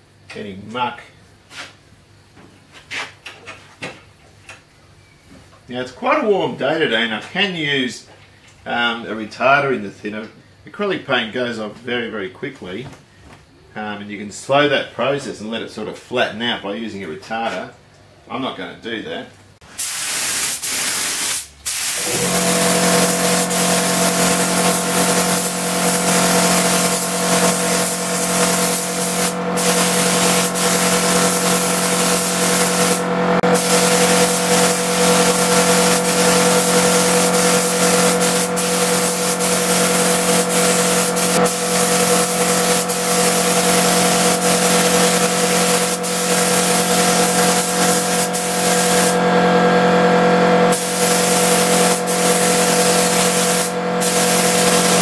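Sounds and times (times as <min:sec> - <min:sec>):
spray gun hissing: 0:19.7 - 0:49.2, 0:50.7 - 0:55.0
steady hum: 0:22.0 - 0:55.0.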